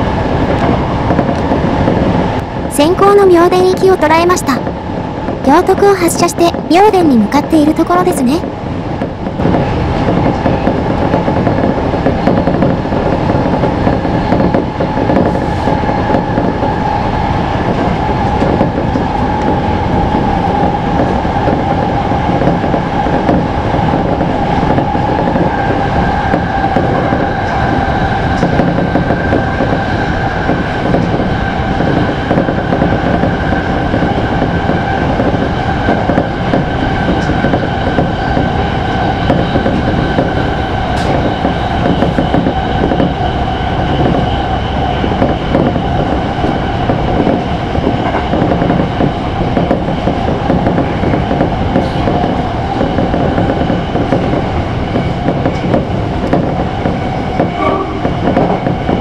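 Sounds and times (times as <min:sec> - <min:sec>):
train wheels rumbling on rail: 0:00.0 - 0:59.0
steady tone: 0:57.5 - 0:59.0.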